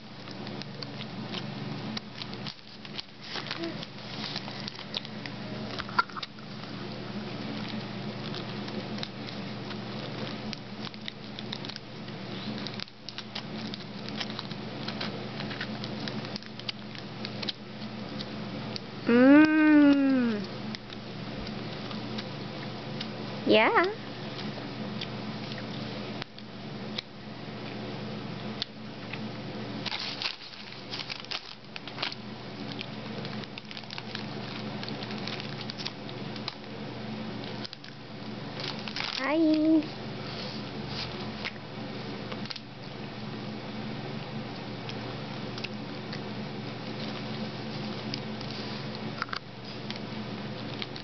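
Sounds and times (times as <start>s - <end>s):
steady low hum: 0.0s - 51.0s
child crunching crackers: 0.2s - 23.1s, 29.8s - 36.7s, 37.3s - 39.8s, 44.8s - 51.0s
plastic bag crinkling: 0.4s - 17.5s, 29.8s - 36.6s, 38.5s - 39.9s.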